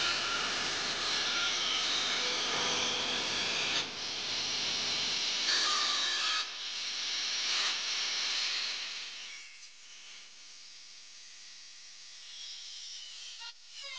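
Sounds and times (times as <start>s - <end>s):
angle grinder cutting sheet metal: 0.0s - 6.6s.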